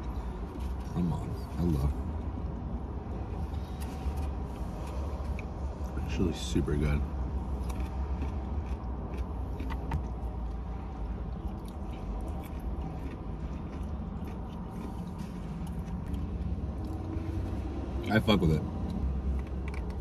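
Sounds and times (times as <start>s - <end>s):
low hum in car cabin: 0.0s - 20.0s
people chewing food: 7.4s - 17.6s.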